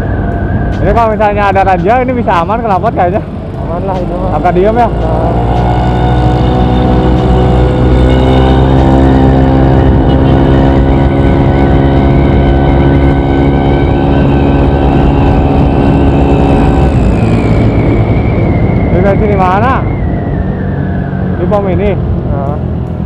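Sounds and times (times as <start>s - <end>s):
scooter engine running: 2.7s - 18.9s.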